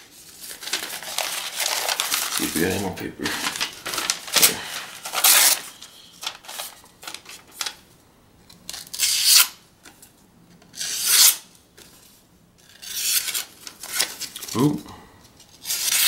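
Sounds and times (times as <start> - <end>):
paper rustling: 0.0 - 7.9, 12.9 - 14.7
knife slicing through paper: 3.4 - 6.7.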